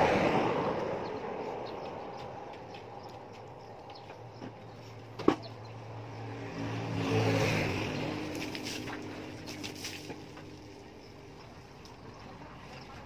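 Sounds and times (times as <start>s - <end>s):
vehicle engine passing: 0.0s - 13.0s
hose water splashing: 6.8s - 13.0s.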